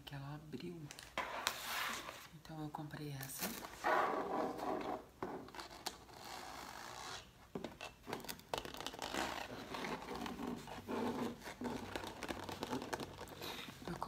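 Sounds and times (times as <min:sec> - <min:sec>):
scratching on plastic folder: 0:08.5 - 0:14.0.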